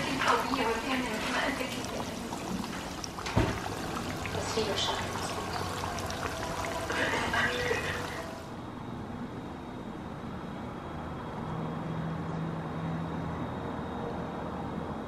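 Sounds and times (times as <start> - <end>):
chicken deep-frying in oil: 0.0 - 8.5
low background hum: 0.0 - 14.1.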